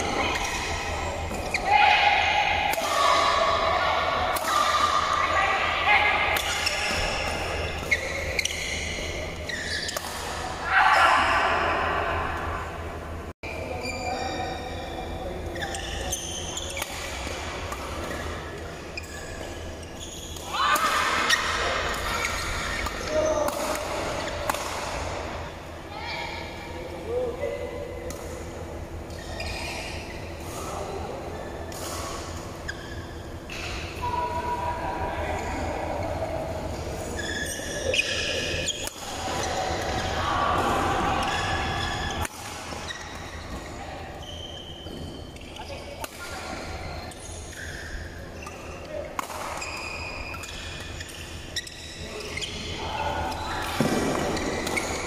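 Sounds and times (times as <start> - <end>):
sneakers squeaking on court: 6.4 - 10.4, 13.8 - 20.5, 29.0 - 30.7, 37.0 - 40.2, 41.2 - 55.0
rackets hitting shuttlecock: 49.0 - 51.4.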